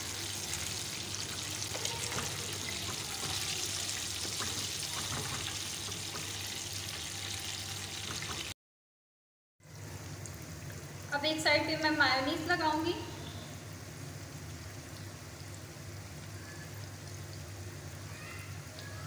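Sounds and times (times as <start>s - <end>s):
hot oil sizzling and crackling: 0.0s - 8.6s.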